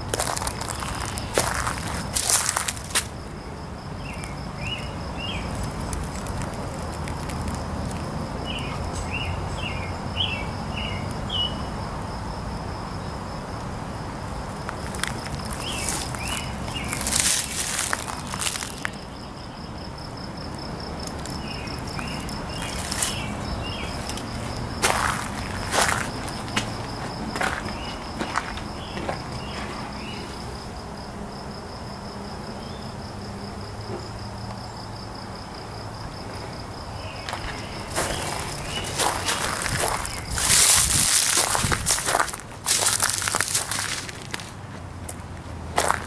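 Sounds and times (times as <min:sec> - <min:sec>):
footsteps crunching over debris: 0:00.0 - 0:03.2, 0:05.2 - 0:08.2, 0:14.7 - 0:19.0, 0:21.0 - 0:30.2, 0:37.2 - 0:46.0
pulsing insect trill: 0:00.0 - 0:44.0
bird chirping: 0:04.0 - 0:05.7, 0:08.4 - 0:11.6, 0:21.4 - 0:24.2.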